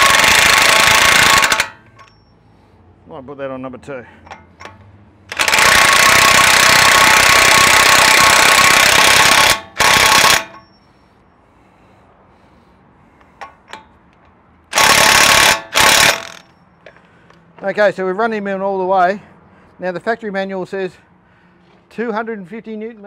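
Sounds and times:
impact wrench hammering: 0.0 - 2.2, 4.3 - 10.7, 14.7 - 16.5.

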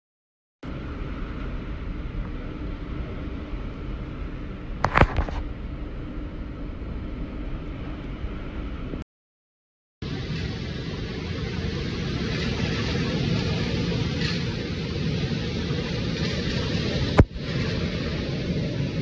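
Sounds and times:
storm wind roaring: 0.6 - 9.0, 10.0 - 19.0
heavy rain: 10.0 - 19.0.

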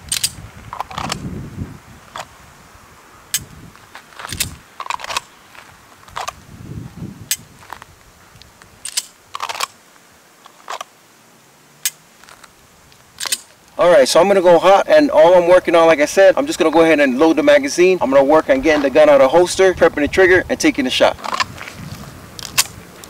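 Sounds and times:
pistol holster clicks and rattles: 0.1 - 1.3, 4.1 - 5.3, 6.0 - 6.4, 8.8 - 9.8, 10.4 - 10.9, 13.2 - 13.6, 21.2 - 21.6, 22.4 - 22.8.

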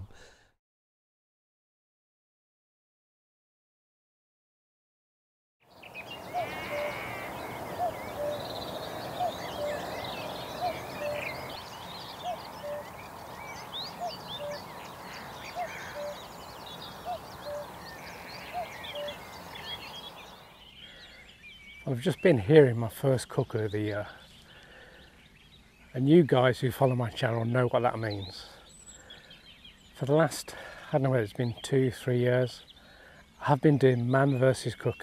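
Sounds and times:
songbirds chattering: 5.7 - 35.0
cuckoo calling: 5.8 - 21.0.

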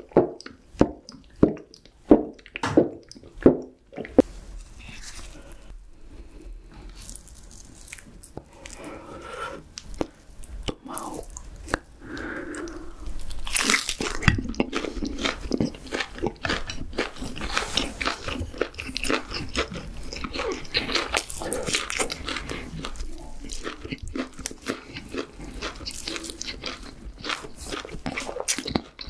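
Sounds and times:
crunchy wet chewing: 6.7 - 9.0, 9.6 - 29.0
biting into grilled meat: 9.7 - 29.0.

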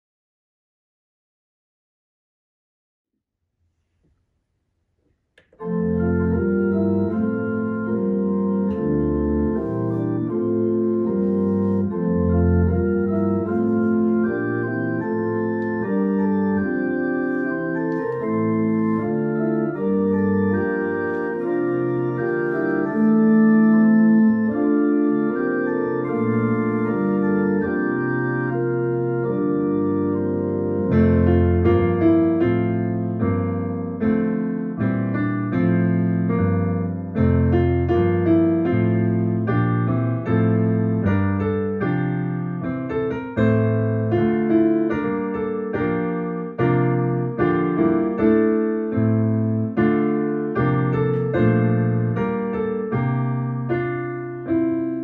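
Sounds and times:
organ playing sustained chords: 5.5 - 32.2.

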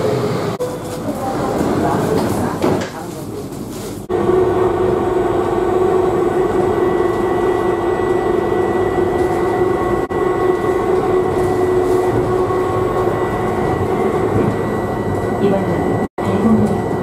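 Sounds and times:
train rumbling at speed: 0.0 - 17.0
high whine: 4.1 - 17.0.

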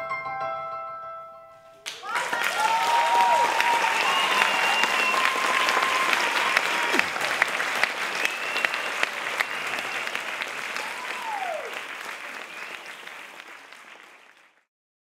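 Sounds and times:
audience applauding: 1.8 - 14.7
whistle: 3.9 - 6.1, 8.1 - 10.3, 12.4 - 13.2.

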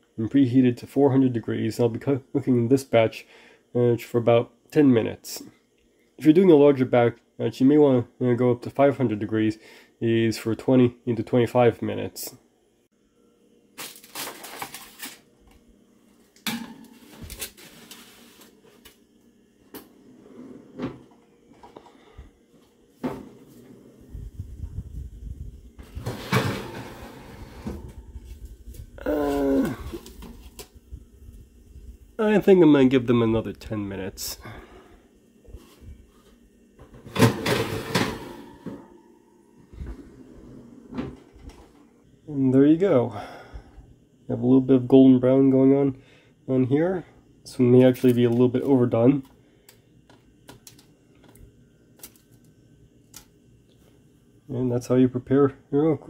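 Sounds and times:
baking tray sliding onto rack: 25.8 - 28.1, 37.1 - 39.0
oven rack metal clanks: 26.0 - 28.1, 37.1 - 39.0.

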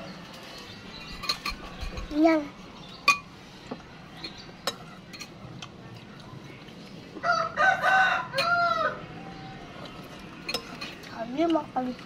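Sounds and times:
spoons clinking against bowls: 0.4 - 2.3, 3.0 - 3.4, 4.1 - 5.4, 8.3 - 8.6, 9.8 - 11.6
rooster crowing: 7.2 - 9.7.

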